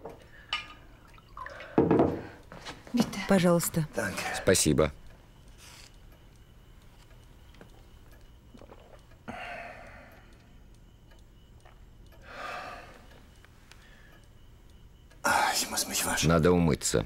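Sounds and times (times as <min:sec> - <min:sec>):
clock ticking: 0:04.5 - 0:12.3.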